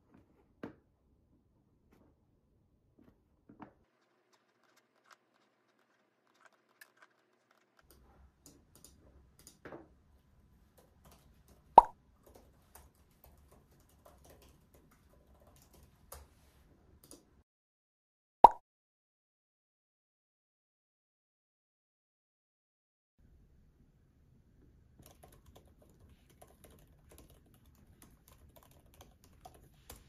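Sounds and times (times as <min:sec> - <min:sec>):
laptop keyboard typing: 0:04.0 - 0:09.6, 0:10.6 - 0:17.3, 0:25.0 - 0:30.0
computer mouse clicks: 0:07.9 - 0:09.6, 0:10.7 - 0:16.4, 0:17.0 - 0:17.3, 0:25.0 - 0:30.0.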